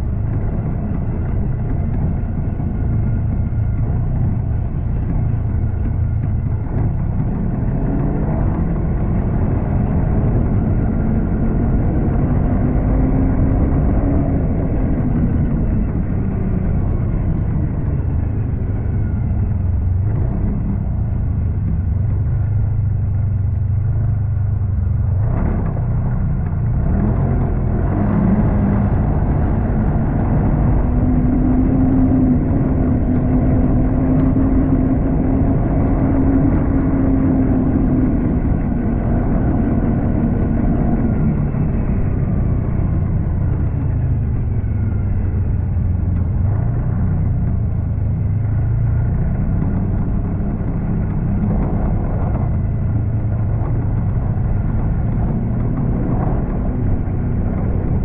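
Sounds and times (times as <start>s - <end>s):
snowmobile engine running: 0.0s - 58.0s.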